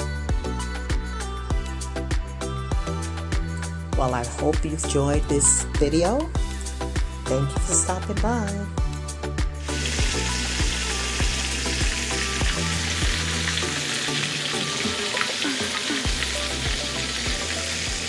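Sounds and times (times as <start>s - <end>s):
background music with steady beat: 0.0s - 18.0s
chicken frying in hot oil: 9.6s - 18.0s.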